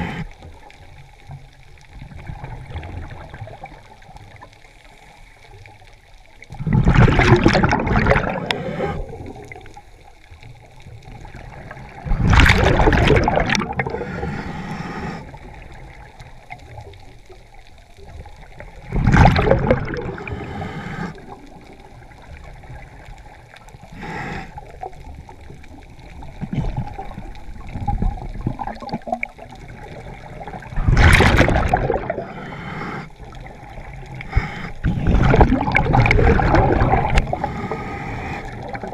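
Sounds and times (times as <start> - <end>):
diver's bubbles bursting: 6.5 - 9.7, 11.2 - 14.2, 18.6 - 22.0, 26.0 - 32.4, 33.2 - 38.9.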